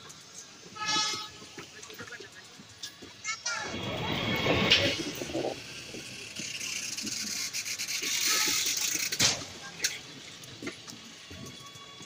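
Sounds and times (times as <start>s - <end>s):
train wheels hissing on rails: 0.0s - 12.0s.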